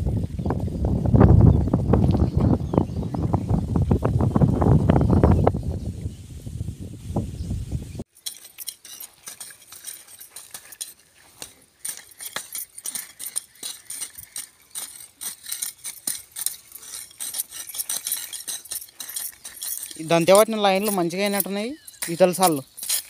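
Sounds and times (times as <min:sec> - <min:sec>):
wind noise: 0:00.0 - 0:08.1
metal tools scraping stony soil: 0:08.0 - 0:23.0.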